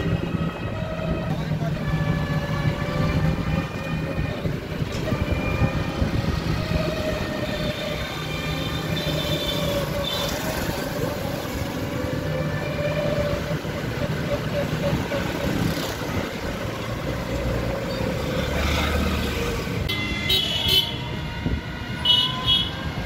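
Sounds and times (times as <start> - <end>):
whining tones: 0.0 - 18.4
train rumbling: 0.0 - 19.9.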